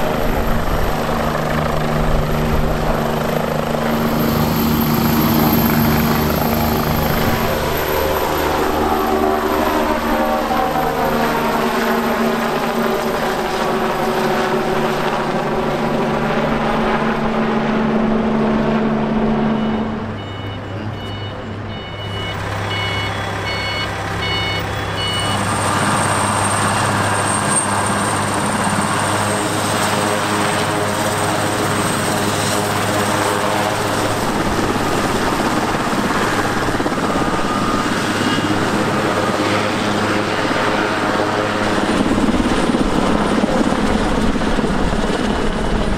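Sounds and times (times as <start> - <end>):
helicopter flying away: 0.0 - 45.9
helicopter rotors running loudly: 0.0 - 45.9
short high beeps: 19.6 - 25.5.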